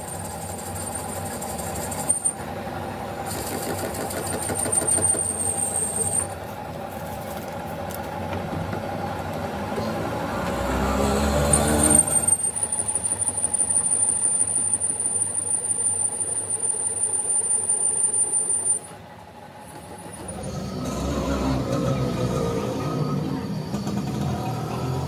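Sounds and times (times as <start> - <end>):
lathe cutting tool squealing: 0.0 - 2.4, 3.3 - 6.4, 10.5 - 19.0, 19.7 - 25.0.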